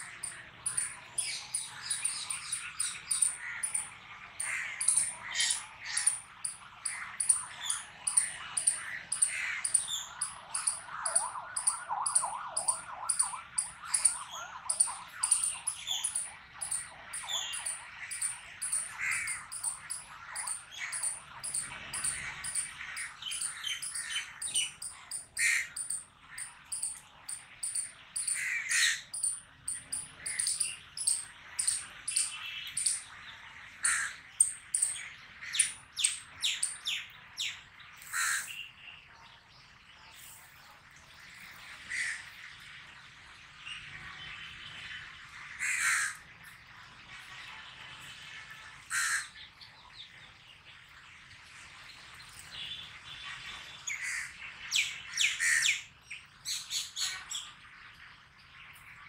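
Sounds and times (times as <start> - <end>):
loud bird calls: 0.0 - 33.1, 33.8 - 38.8, 48.9 - 49.4, 53.9 - 55.9
birds chirping: 0.0 - 39.0.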